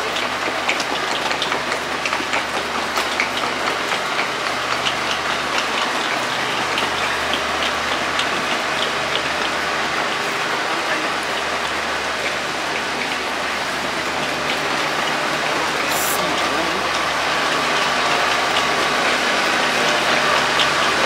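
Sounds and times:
train idling rumble: 0:01.6 - 0:21.0.

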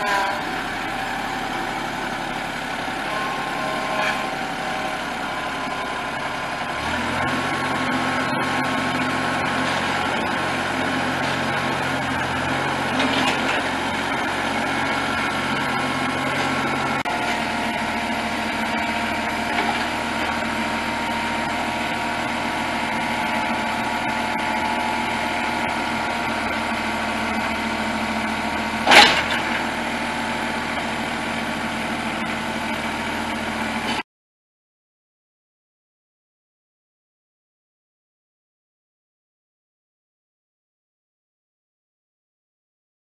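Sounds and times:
tractor diesel engine running: 0:00.0 - 0:34.0.

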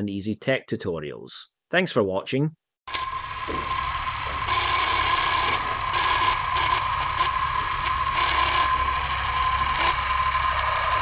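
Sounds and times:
film projector whirring: 0:02.9 - 0:11.0.

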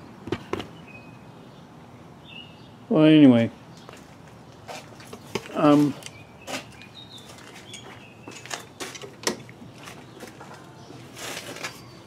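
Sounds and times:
birds chirping faintly: 0:00.0 - 0:12.0
rustle: 0:03.8 - 0:12.0.

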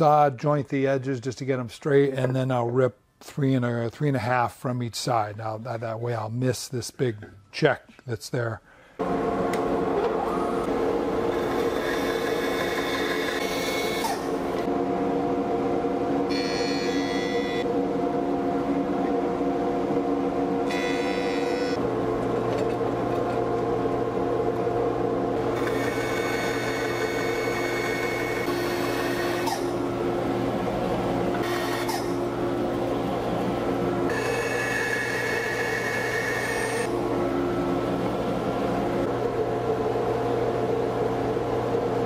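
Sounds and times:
machine hum: 0:08.8 - 0:42.0
bandsaw cutting wood: 0:11.3 - 0:14.7, 0:25.6 - 0:29.8.

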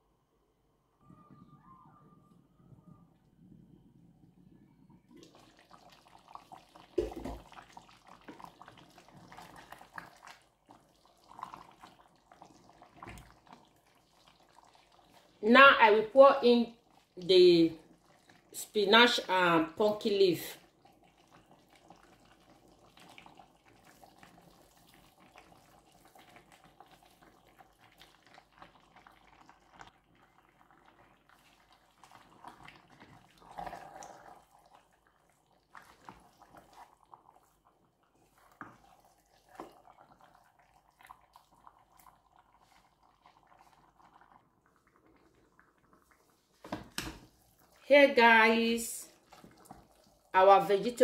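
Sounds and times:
wooden spatula stirring in pot: 0:05.2 - 0:17.2, 0:30.1 - 0:51.0.

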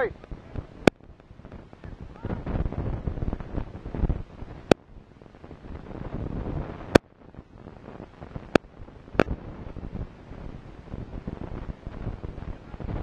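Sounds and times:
wind on microphone: 0:00.0 - 0:13.0.

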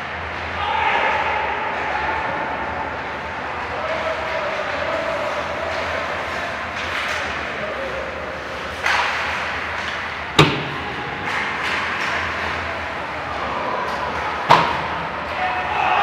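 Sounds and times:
indoor rink noise: 0:00.0 - 0:16.0
stick hitting puck: 0:08.7 - 0:12.7.

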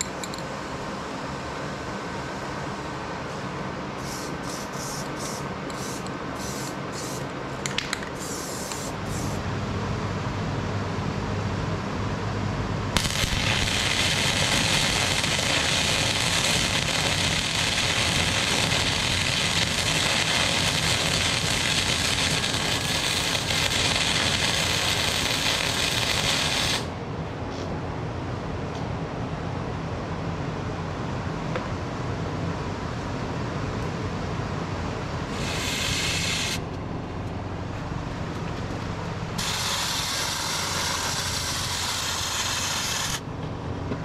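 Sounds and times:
spray can hissing bursts: 0:04.0 - 0:07.3, 0:08.2 - 0:09.4, 0:13.2 - 0:26.9, 0:35.3 - 0:36.6, 0:39.4 - 0:43.2
welder crackling sizzle: 0:13.0 - 0:26.9, 0:35.3 - 0:36.6, 0:39.4 - 0:43.2.

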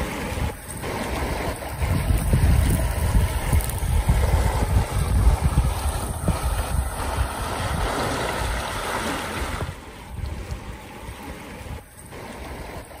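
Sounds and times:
river water rushing: 0:00.0 - 0:13.0
wind buffeting microphone: 0:00.0 - 0:13.0.

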